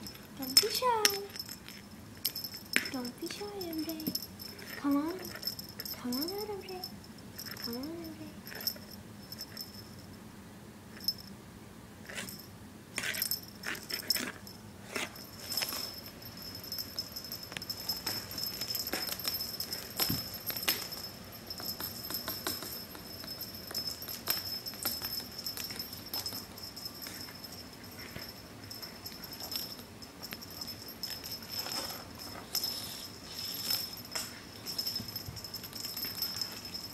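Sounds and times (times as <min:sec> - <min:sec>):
small bell jingling: 0:00.0 - 0:10.2, 0:10.9 - 0:11.4, 0:12.1 - 0:36.9
toys tapping on wooden floor: 0:18.0 - 0:26.4.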